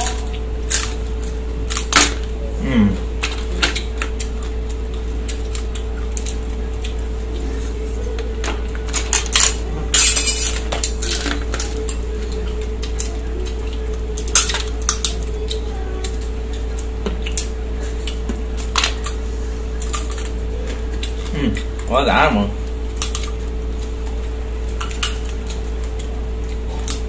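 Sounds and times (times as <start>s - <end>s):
steady hum: 0.0s - 27.0s.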